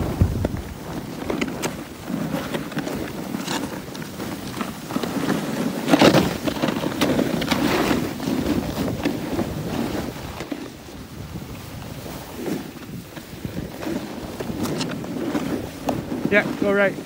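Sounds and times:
edges scraping over snow: 0:00.0 - 0:17.0
wind on microphone: 0:00.0 - 0:17.0.

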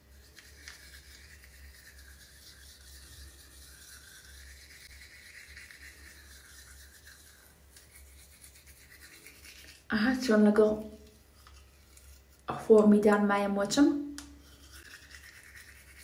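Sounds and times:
toothbrush scrubbing teeth: 0:00.0 - 0:13.0, 0:14.2 - 0:16.0.

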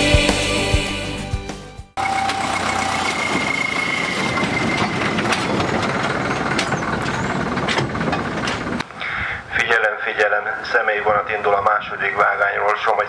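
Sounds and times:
high thin squeal: 0:02.0 - 0:05.6
train rumbling and clicking on track: 0:02.0 - 0:08.9
diesel locomotive running: 0:02.0 - 0:11.7.

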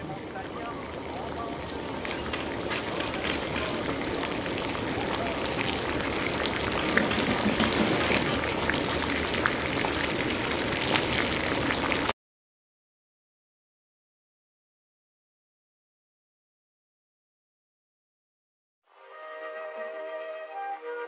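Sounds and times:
moka pot gurgling and sputtering: 0:00.0 - 0:12.1.

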